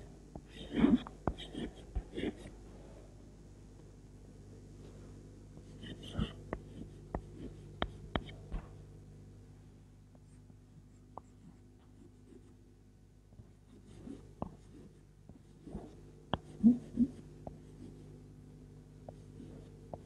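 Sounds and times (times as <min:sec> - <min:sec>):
steady low hum: 0:00.0 - 0:20.0
chalk scratching on chalkboard: 0:13.7 - 0:18.1.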